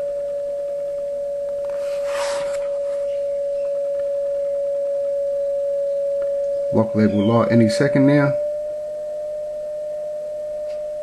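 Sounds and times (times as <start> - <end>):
steady pure beat tone: 0.0 - 8.6
brief rustling hiss: 1.8 - 2.7.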